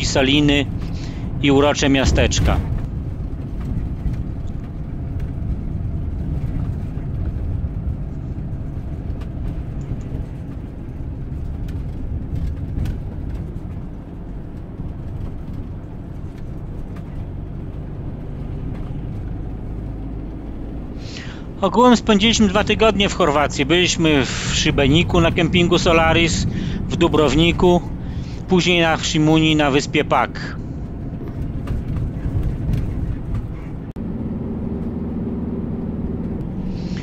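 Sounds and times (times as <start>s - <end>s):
faint rattles: 0.0s - 34.0s
road and engine rumble: 0.0s - 37.0s.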